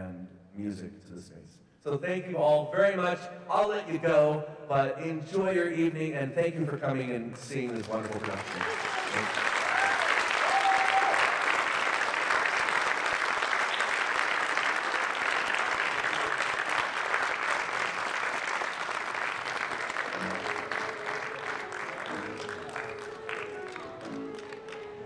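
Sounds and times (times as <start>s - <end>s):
audience applauding: 7.5s - 25.0s
music: 19.8s - 25.0s.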